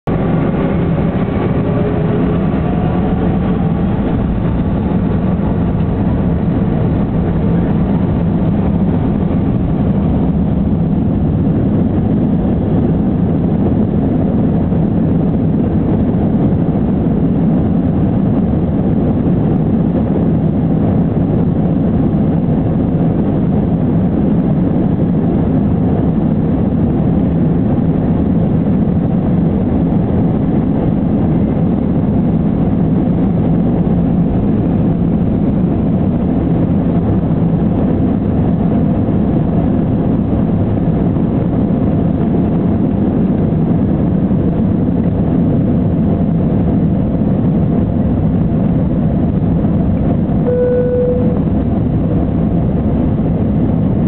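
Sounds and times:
engine and runway rumble: 0.0 - 54.0
jet engines spooling up: 0.1 - 9.0.

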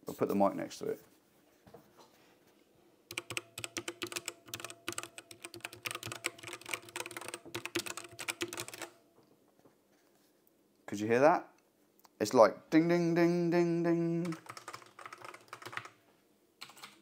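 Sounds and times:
mechanical keyboard typing: 3.1 - 9.0, 14.2 - 16.0, 16.6 - 17.0.

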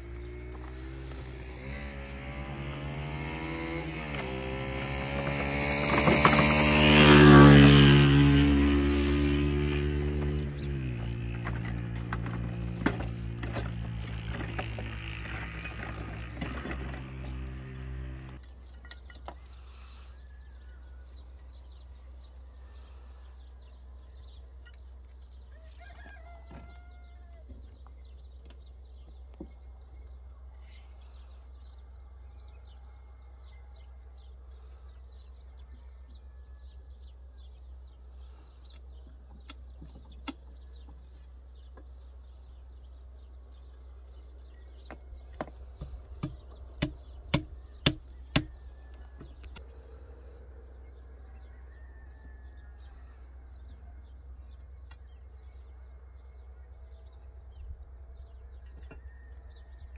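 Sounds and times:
small birds chirping: 0.0 - 59.9
rooster crowing: 25.5 - 27.5, 50.8 - 54.3.

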